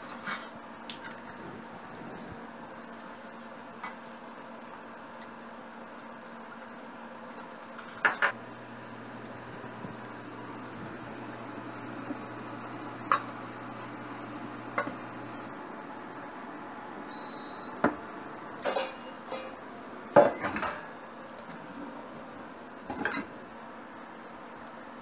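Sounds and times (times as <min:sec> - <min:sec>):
short high beep: 0:17.1 - 0:17.7
metal pots and bowls clanking: 0:18.6 - 0:19.6.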